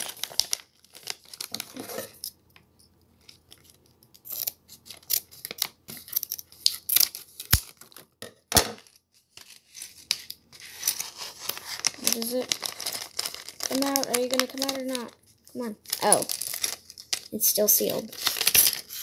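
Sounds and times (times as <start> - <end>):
plastic bag crinkling: 0.0 - 2.2, 8.8 - 19.0.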